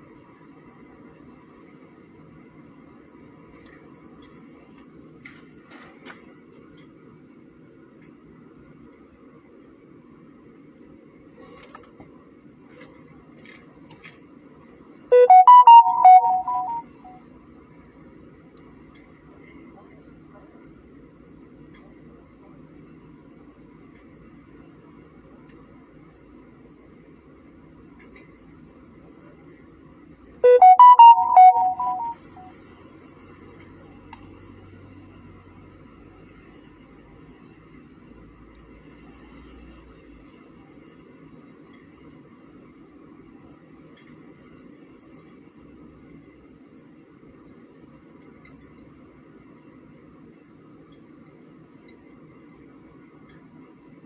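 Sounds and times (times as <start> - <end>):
electronic notification jingle: 15.1 - 17.1, 30.4 - 32.4.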